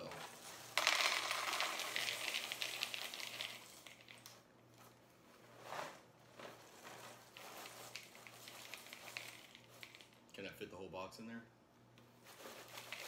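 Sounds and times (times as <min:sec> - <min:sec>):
cereal pouring into plastic bowl: 0:00.0 - 0:04.4, 0:06.6 - 0:10.2, 0:12.3 - 0:13.0.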